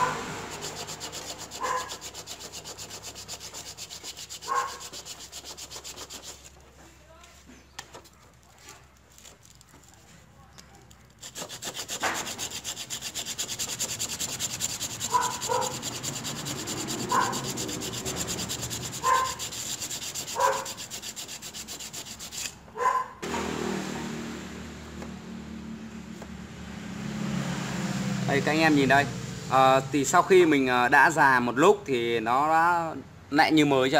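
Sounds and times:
short high squeaks: 0:00.0 - 0:02.6
metal rubbing on sandpaper: 0:00.0 - 0:06.7, 0:07.9 - 0:10.1, 0:10.9 - 0:22.6.

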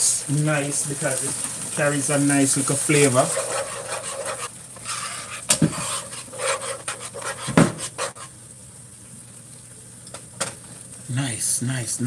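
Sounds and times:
sauce simmering in pan: 0:00.0 - 0:12.0
utensil scraping frying pan: 0:00.6 - 0:08.4.

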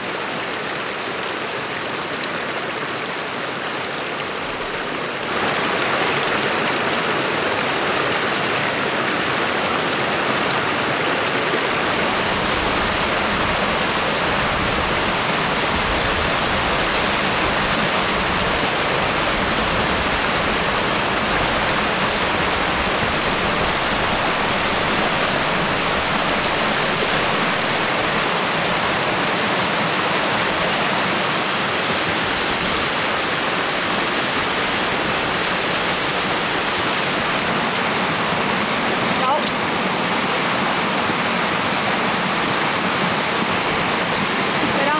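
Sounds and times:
stream water rushing: 0:00.0 - 0:44.9
quick high rising chirps: 0:23.2 - 0:27.9.

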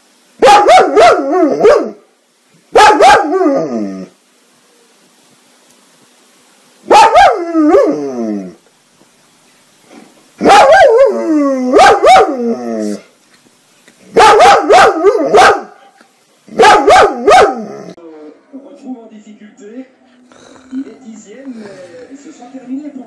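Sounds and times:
dog barking and howling: 0:00.4 - 0:02.1, 0:02.7 - 0:04.1, 0:06.8 - 0:08.6, 0:10.4 - 0:13.0, 0:14.1 - 0:15.9, 0:16.5 - 0:18.0.

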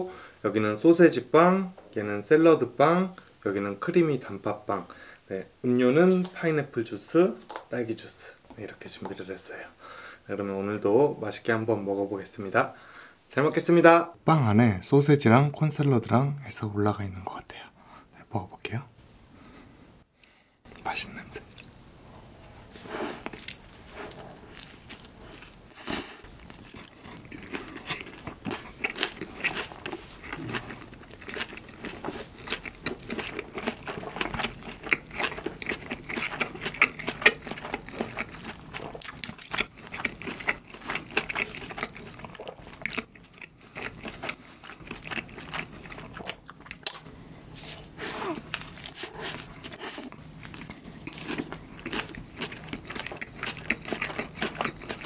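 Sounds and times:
chewing mouth clicks and smacks: 0:21.4 - 0:21.8, 0:26.4 - 0:47.0, 0:50.0 - 0:55.0.

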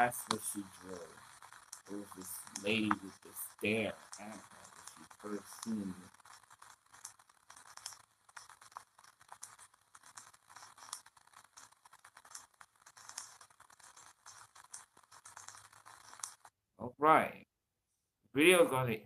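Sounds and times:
faint hiss: 0:00.0 - 0:01.2, 0:01.9 - 0:06.1
small crackles and clicks: 0:00.0 - 0:16.5.

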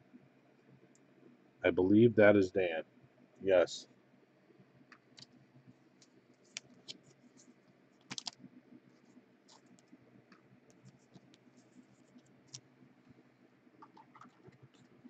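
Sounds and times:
card sliding into plastic sleeve: 0:08.1 - 0:08.4.

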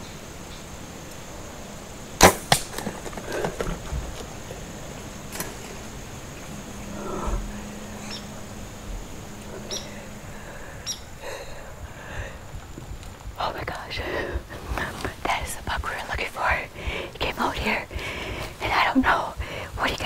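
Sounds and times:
faint high hiss: 0:00.0 - 0:20.0
arrow striking deer: 0:02.2 - 0:03.9.

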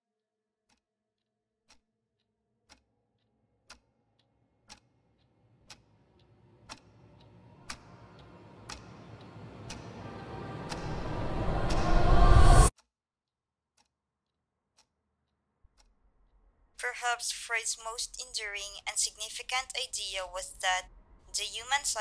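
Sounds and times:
clock ticking: 0:03.6 - 0:11.0, 0:15.7 - 0:22.0
low rumble: 0:06.4 - 0:12.7.

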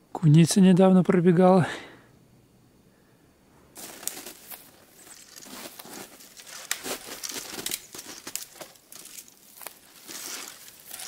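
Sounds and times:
footsteps crunching on snow: 0:03.8 - 0:11.0.

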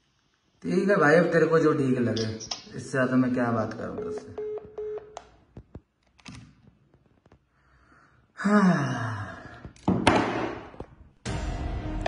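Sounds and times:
breathy exhale: 0:07.5 - 0:09.8.

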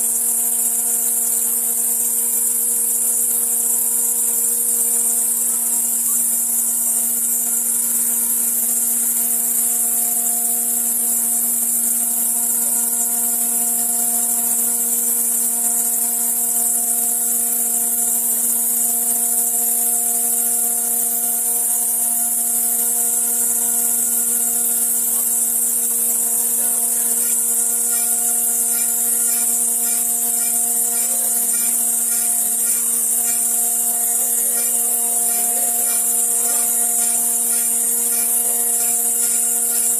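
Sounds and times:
spindle whine: 0:20.4 - 0:39.9.

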